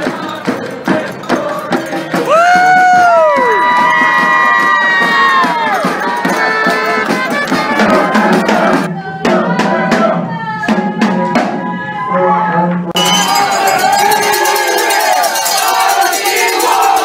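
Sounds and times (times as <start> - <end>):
brass band with drums playing: 0.0 - 11.9, 12.8 - 17.0
crowd shouting and chanting: 0.0 - 17.0
sharp beats: 13.0 - 17.0.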